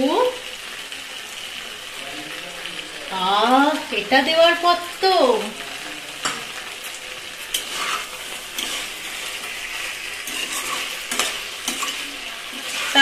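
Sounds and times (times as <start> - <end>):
food sizzling in a pan: 0.0 - 13.0
spatula scraping a pan: 6.2 - 13.0.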